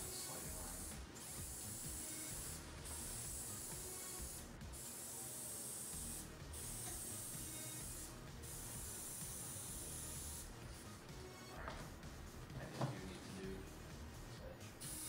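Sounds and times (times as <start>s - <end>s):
aerosol spray hissing: 0.0s - 10.5s, 14.8s - 15.0s.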